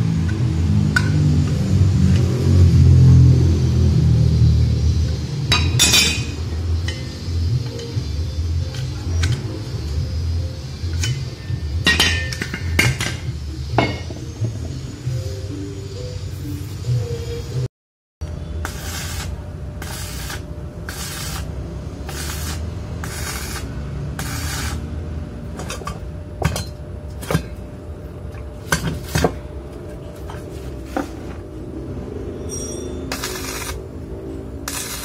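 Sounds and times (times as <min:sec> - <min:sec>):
steel parts clinking: 0:10.9 - 0:14.2, 0:32.4 - 0:33.8.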